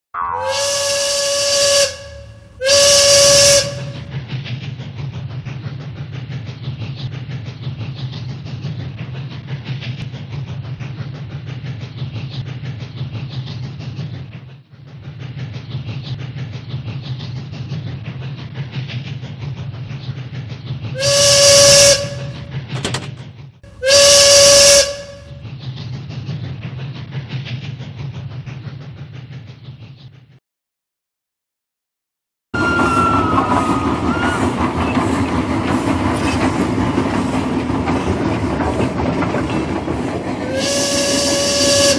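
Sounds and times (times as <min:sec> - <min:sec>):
train whistle toots: 0:00.4 - 0:04.1, 0:21.0 - 0:22.5, 0:23.7 - 0:25.4, 0:32.6 - 0:35.0, 0:40.4 - 0:41.9
toy train motor hum: 0:40.4 - 0:41.9.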